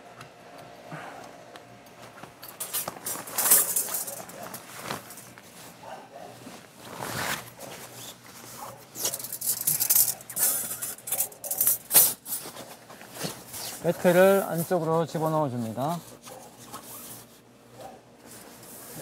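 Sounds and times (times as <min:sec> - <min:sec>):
tent fabric rustling: 0:02.8 - 0:09.8, 0:12.1 - 0:17.4.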